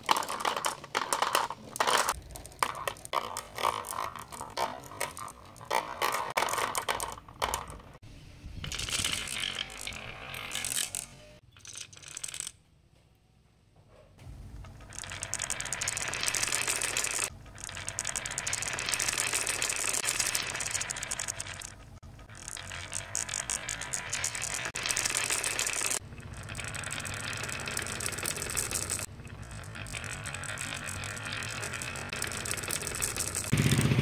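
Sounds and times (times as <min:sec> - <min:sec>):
marbles clattering into plastic: 0:00.0 - 0:08.0, 0:08.6 - 0:12.6, 0:14.6 - 0:33.6
marbles rolling down wooden slope: 0:00.0 - 0:08.0, 0:08.6 - 0:12.6, 0:14.6 - 0:34.0.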